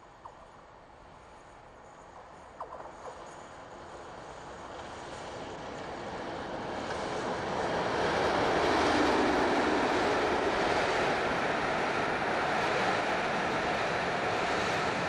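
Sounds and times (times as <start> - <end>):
train wheel noise: 2.0 - 15.0
diesel locomotive passing: 3.3 - 15.0.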